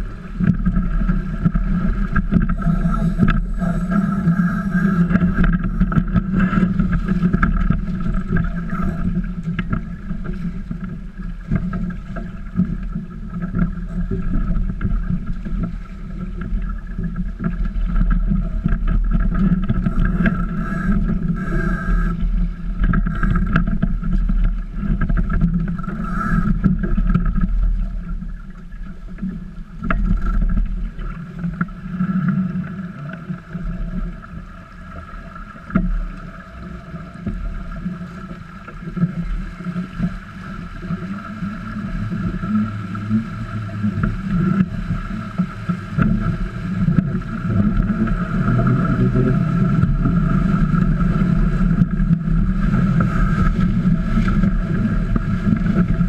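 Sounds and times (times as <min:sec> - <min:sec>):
wind on microphone: 0:00.0 - 0:28.5
water rushing along hulls: 0:00.0 - 0:56.0.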